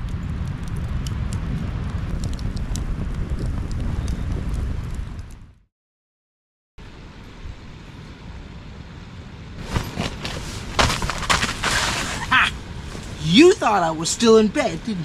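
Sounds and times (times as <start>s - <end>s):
steady low rumble: 0.0s - 5.6s
rustling handling noise: 9.6s - 13.2s.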